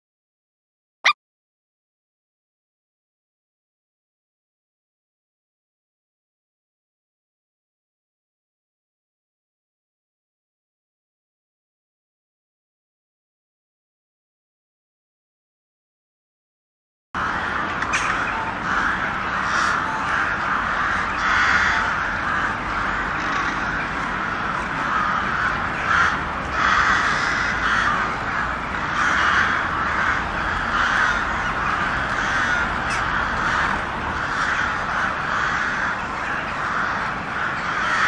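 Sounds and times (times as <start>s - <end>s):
crows cawing: 17.2s - 38.0s.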